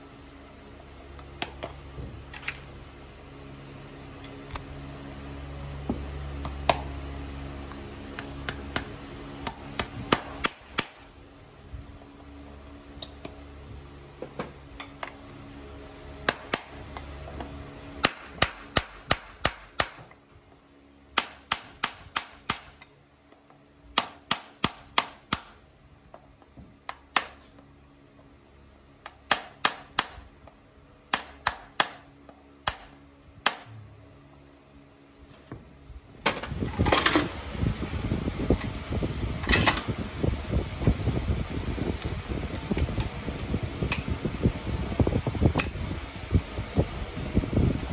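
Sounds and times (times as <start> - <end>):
hammer tapping nails: 29.0 - 30.2, 31.1 - 32.0.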